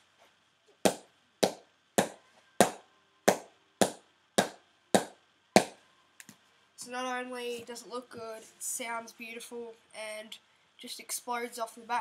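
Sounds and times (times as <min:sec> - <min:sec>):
person talking: 0:06.8 - 0:12.0.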